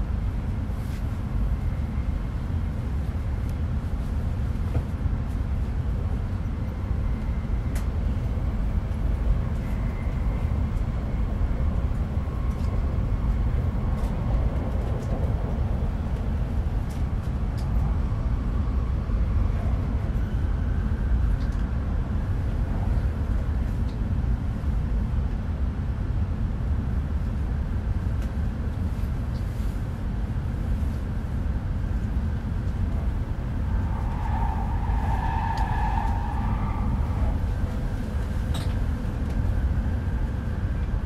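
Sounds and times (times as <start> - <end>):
train cabin rumble: 7.7 - 18.0.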